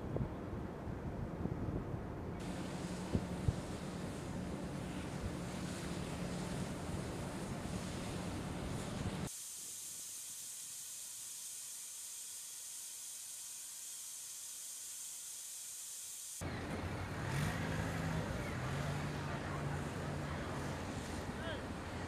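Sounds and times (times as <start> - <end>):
wind: 0.0 - 22.0
low engine-like hum: 0.1 - 9.3, 16.4 - 22.0
thin high-pitched hiss: 2.4 - 16.4
water noise: 2.4 - 22.0.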